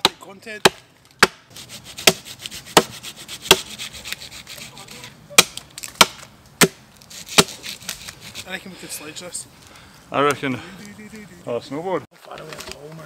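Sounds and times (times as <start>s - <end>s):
axe chopping log: 0.0s - 2.2s, 2.8s - 3.7s, 5.3s - 7.6s.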